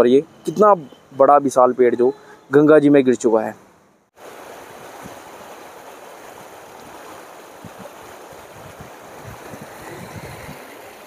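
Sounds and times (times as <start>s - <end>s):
river rushing: 4.2s - 11.0s
wind thumps on microphone: 7.6s - 10.7s.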